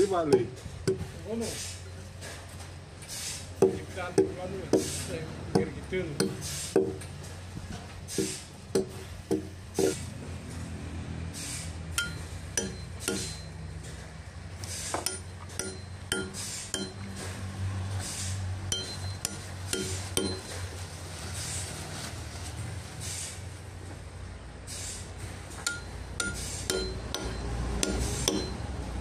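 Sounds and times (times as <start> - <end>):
hatchet striking steel tool: 0.3 - 1.1, 3.6 - 5.0, 5.6 - 7.0, 8.2 - 10.0, 12.0 - 13.6, 14.9 - 17.1, 18.7 - 20.6, 25.6 - 28.6.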